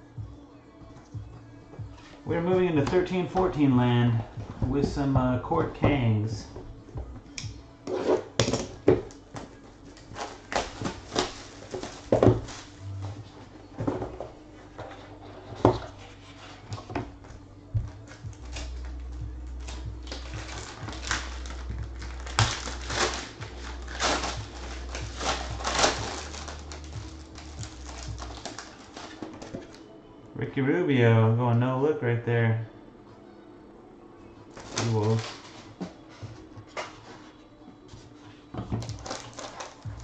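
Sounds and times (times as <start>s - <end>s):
foil pack crinkling and tearing: 9.9s - 12.8s, 18.2s - 29.8s, 34.5s - 35.7s, 38.7s - 40.0s
shrink wrap tearing: 9.9s - 12.8s, 18.2s - 29.8s, 34.6s - 35.6s, 38.8s - 40.0s.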